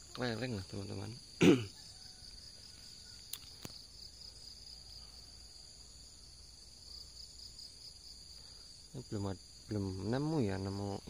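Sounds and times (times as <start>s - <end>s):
high-pitched insect chorus: 0.0s - 11.0s
faint clicks: 3.2s - 3.8s.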